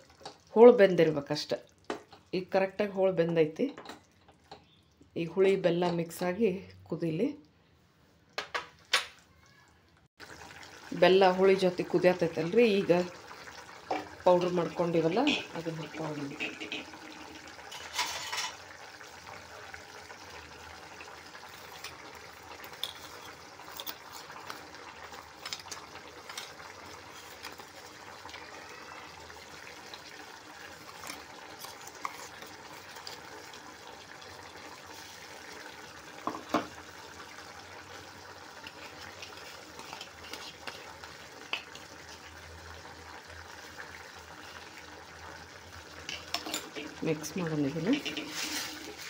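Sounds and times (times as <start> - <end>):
gravy bubbling in a pan: 10.2 - 49.0.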